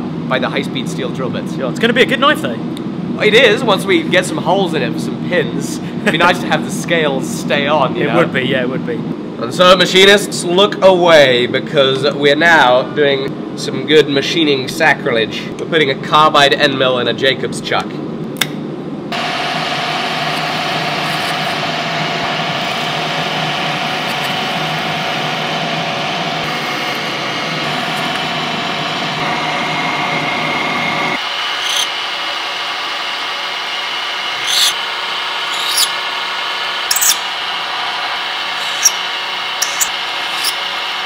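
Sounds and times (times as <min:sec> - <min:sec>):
drill press motor whine: 0:19.1 - 0:41.0
cutter grinding into metal: 0:19.2 - 0:29.4, 0:31.5 - 0:32.0, 0:34.1 - 0:41.0
sharp squeals of cutter: 0:20.2 - 0:21.6, 0:23.9 - 0:24.6, 0:31.6 - 0:31.9, 0:34.4 - 0:34.8, 0:35.5 - 0:36.0, 0:36.8 - 0:37.3, 0:38.6 - 0:40.7.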